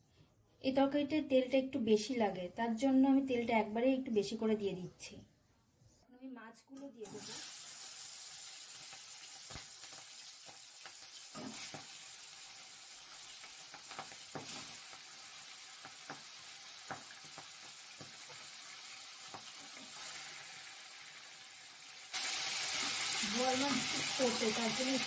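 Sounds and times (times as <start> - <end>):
fish frying in hot oil: 7.1 - 25.0.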